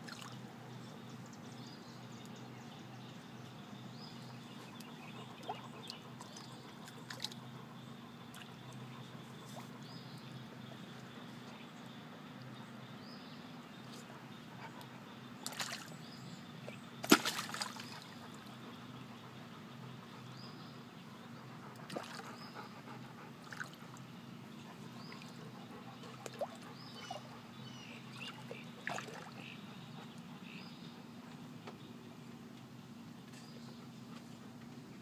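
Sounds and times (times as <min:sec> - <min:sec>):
water sloshing and splashing: 0:00.0 - 0:00.4, 0:04.8 - 0:07.5, 0:15.4 - 0:16.0, 0:16.6 - 0:18.5, 0:21.8 - 0:22.4, 0:23.4 - 0:24.0, 0:28.1 - 0:29.5
steady low hum: 0:00.0 - 0:35.0.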